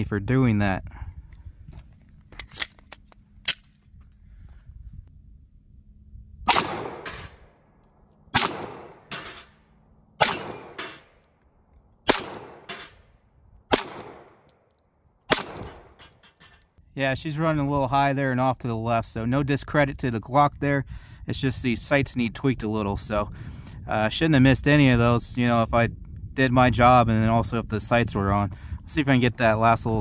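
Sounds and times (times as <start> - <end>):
pistol shots: 6.5 - 7.6, 8.3 - 9.6, 10.2 - 11.3, 12.0 - 13.1, 13.7 - 14.6, 15.3 - 16.3.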